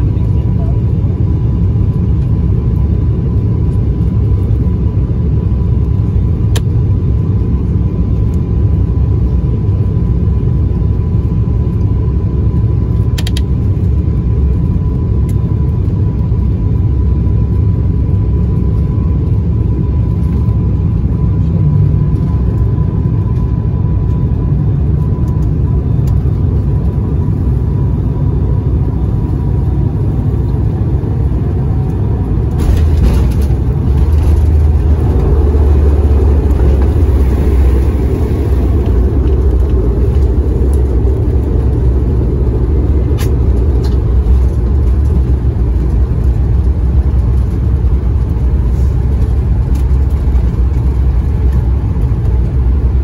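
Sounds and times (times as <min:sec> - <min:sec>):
airliner cabin roar: 0:00.0 - 0:53.0
constant thin whine: 0:00.0 - 0:53.0.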